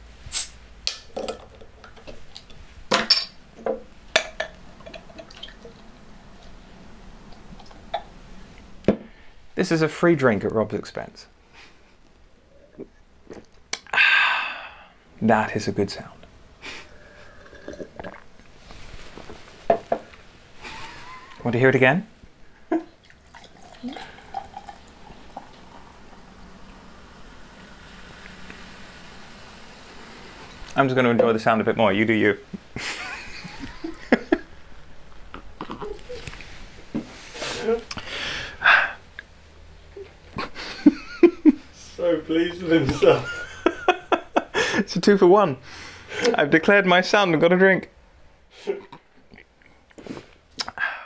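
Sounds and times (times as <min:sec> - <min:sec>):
beer foaming: 0:00.0 - 0:09.9, 0:12.4 - 0:39.6
fizzy drink pouring: 0:04.2 - 0:08.3, 0:22.9 - 0:31.4
bottle glugging: 0:17.4 - 0:18.3, 0:23.0 - 0:25.9.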